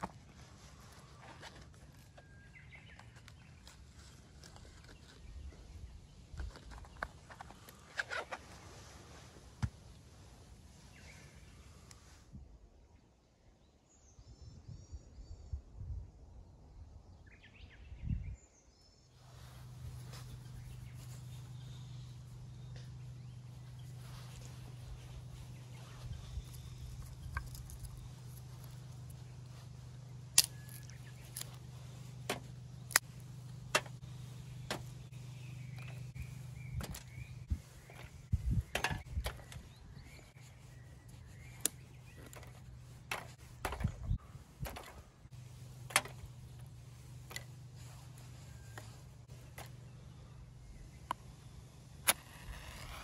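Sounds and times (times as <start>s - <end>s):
steady low hum: 19.2s - 53.0s
twigs crackling: 19.3s - 53.0s
dry twigs snapping: 22.7s - 49.8s.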